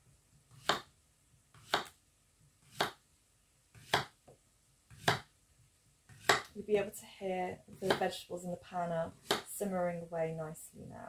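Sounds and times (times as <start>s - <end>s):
knife slicing on wooden board: 6.1s - 6.5s.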